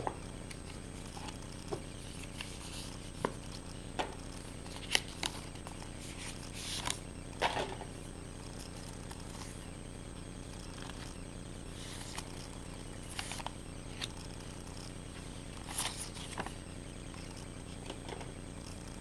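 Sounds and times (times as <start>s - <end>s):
paper rustling: 4.4s - 7.6s, 11.7s - 14.5s, 15.1s - 16.6s.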